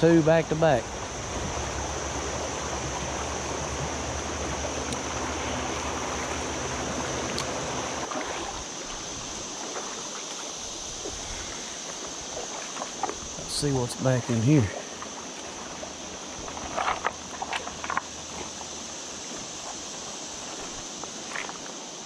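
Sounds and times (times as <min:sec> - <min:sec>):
river water rushing over rocks: 0:00.0 - 0:13.9.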